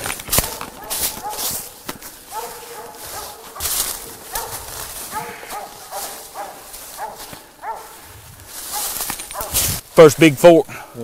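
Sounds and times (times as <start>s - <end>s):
dog barking: 0.3s - 8.0s, 8.7s - 9.6s.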